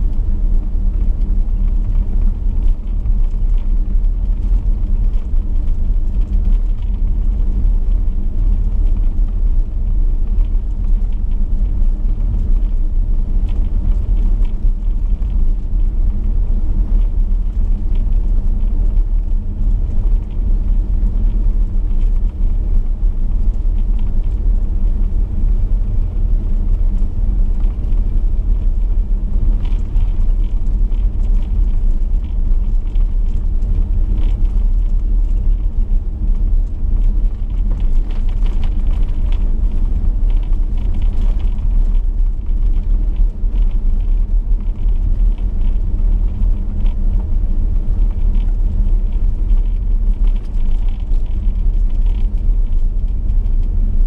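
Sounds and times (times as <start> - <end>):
car engine and tyres rumbling: 0.0 - 54.0
gravel crackling: 0.0 - 54.0.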